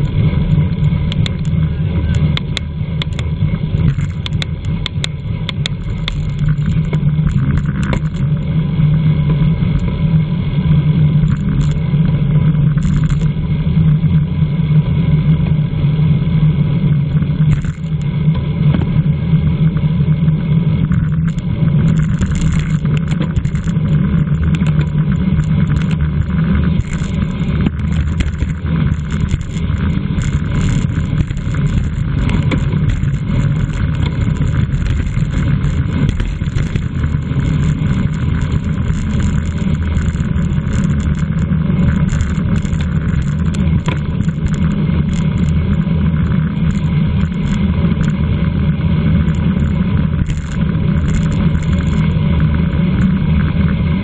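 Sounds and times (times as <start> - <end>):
sharp clicks: 1.1 - 8.4, 12.8 - 13.3, 17.5 - 18.1, 20.9 - 48.2, 49.2 - 52.2.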